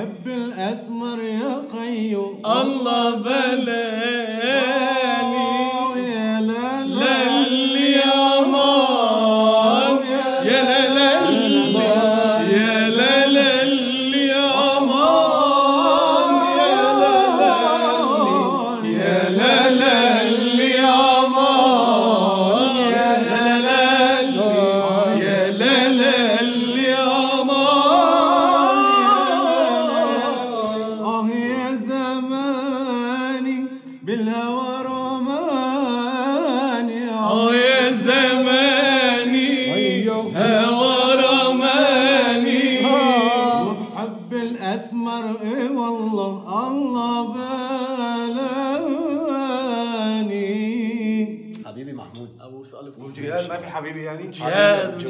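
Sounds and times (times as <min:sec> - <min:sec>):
men singing unaccompanied: 0:00.0 - 0:51.6, 0:54.3 - 0:55.0.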